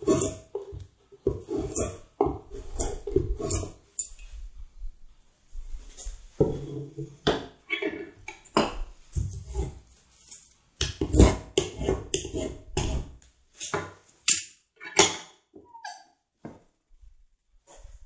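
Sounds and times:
hand tool rasping on wood: 1.3 - 3.8, 11.0 - 13.2.

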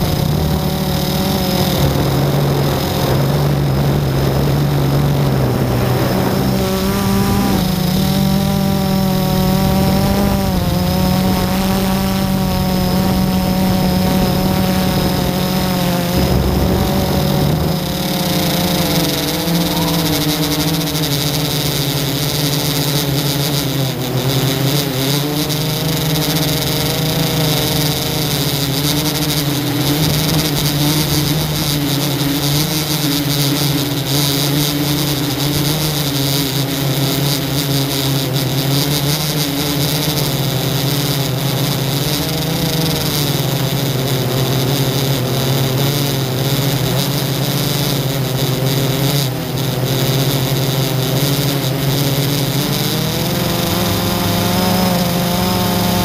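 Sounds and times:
drone propellers buzzing: 0.0 - 56.0.

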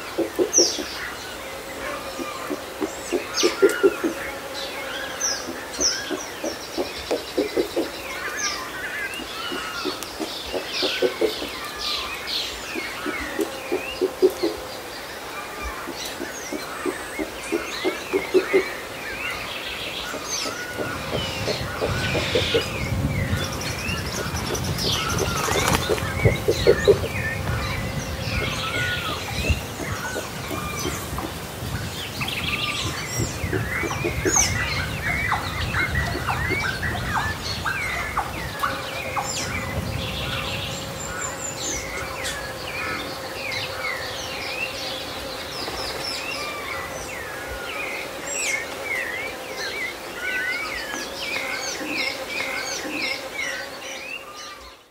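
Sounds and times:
birds chirping and calling: 0.0 - 54.9
insect drone: 0.0 - 54.9
distant thunder rumble: 20.0 - 44.4.

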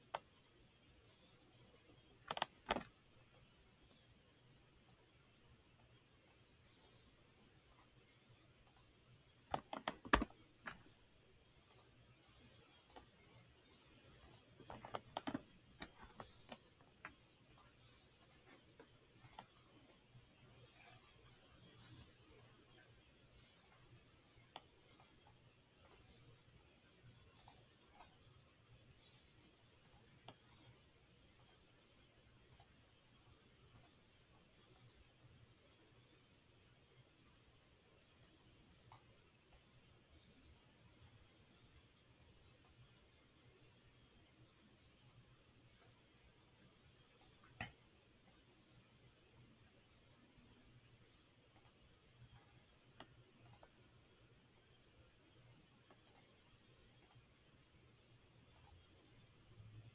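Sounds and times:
faint low hum: 0.0 - 59.9
computer mouse clicks: 2.2 - 4.1, 5.7 - 7.0, 7.7 - 8.0, 8.6 - 11.0, 11.6 - 13.2, 14.1 - 21.0, 21.6 - 26.3, 27.3 - 28.4, 29.0 - 30.8, 31.4 - 31.8, 32.4 - 32.8, 33.7 - 34.9, 38.1 - 40.7, 42.6 - 42.9, 45.7 - 46.2, 47.1 - 48.6, 51.5 - 51.8, 52.9 - 53.8, 55.5 - 56.4, 57.0 - 57.3, 58.5 - 58.8.

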